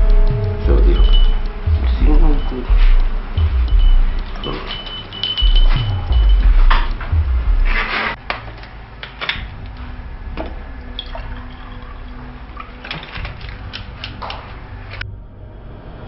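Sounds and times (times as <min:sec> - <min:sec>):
water pouring into glass: 0:10.8 - 0:13.3.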